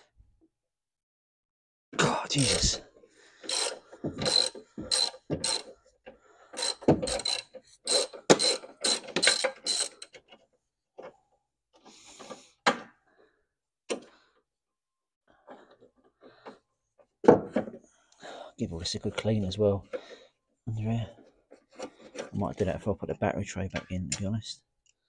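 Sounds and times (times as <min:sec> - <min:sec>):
hand ratchet clicking: 0:03.4 - 0:05.8, 0:06.5 - 0:10.2.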